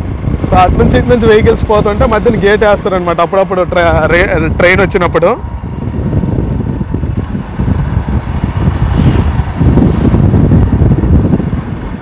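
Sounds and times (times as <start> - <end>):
motorbike running: 0.0 - 12.0
road noise: 0.0 - 12.0
wind buffeting microphone: 0.0 - 12.0.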